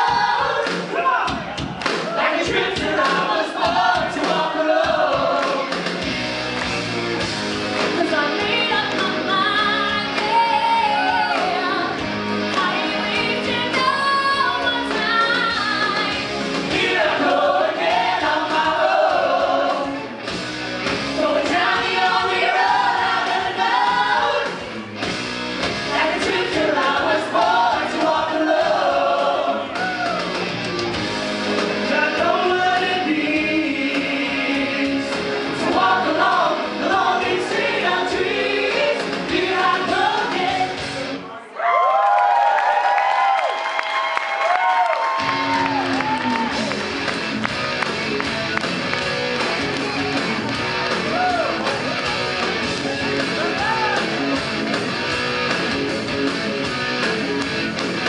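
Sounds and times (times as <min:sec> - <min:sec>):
live pop-rock singing with band: 0:00.0 - 0:06.0, 0:21.2 - 0:24.7, 0:31.5 - 0:41.0.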